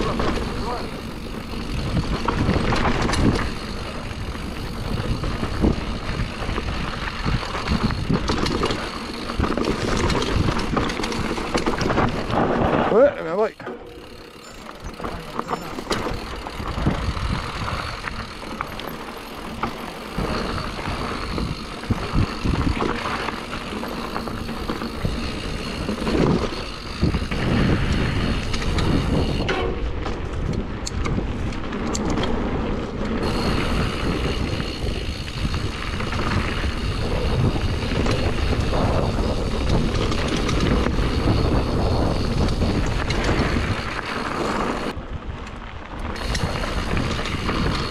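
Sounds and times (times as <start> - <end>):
bike knocking and rattling: 0.0 - 47.9
bike tyres on dirt and stones: 0.0 - 47.9
wind buffeting microphone: 0.0 - 47.9.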